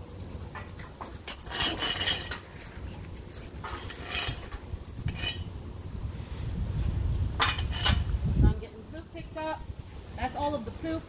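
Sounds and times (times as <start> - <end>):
metal gate clanking: 0.6 - 2.6, 3.6 - 5.5, 7.4 - 8.1
metal scoop scraping concrete: 1.1 - 5.5, 7.4 - 8.2.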